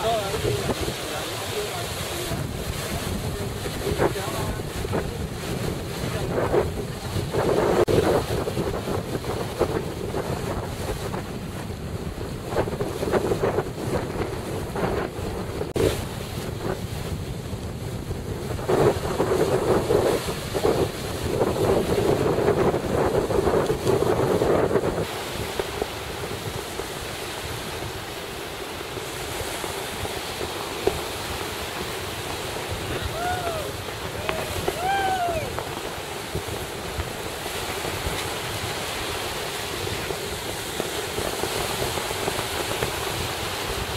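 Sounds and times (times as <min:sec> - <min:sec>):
surf washing on beach: 0:00.0 - 0:43.9
wind buffeting microphone: 0:00.0 - 0:43.9.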